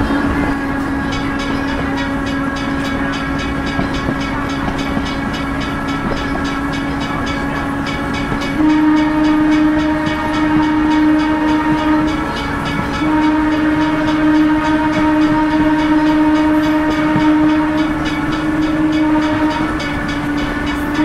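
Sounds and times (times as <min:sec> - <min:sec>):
motorcar engine drone: 0:00.0 - 0:21.0
train horn blasts: 0:00.0 - 0:21.0.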